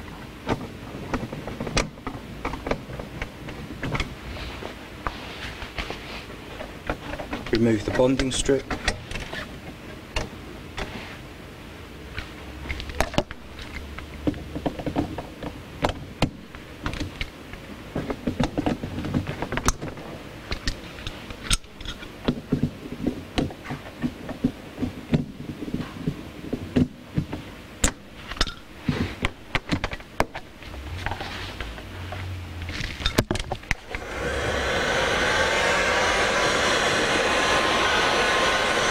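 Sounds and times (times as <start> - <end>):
heat gun whining air rush: 33.7 - 38.9.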